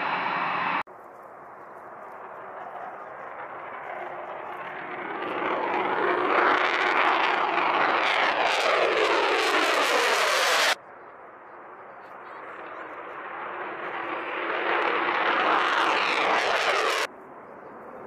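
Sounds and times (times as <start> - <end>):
jet taking off: 0.0 - 0.8, 1.8 - 10.8, 11.6 - 17.1
jet engine roar passing overhead: 0.0 - 18.0.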